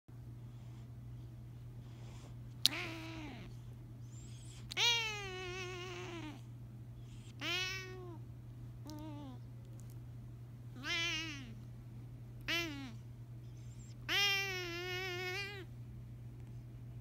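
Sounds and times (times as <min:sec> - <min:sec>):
cat meowing: 0:02.6 - 0:03.5, 0:04.7 - 0:06.4, 0:07.4 - 0:08.2, 0:10.8 - 0:11.6, 0:12.5 - 0:13.0, 0:14.1 - 0:15.7.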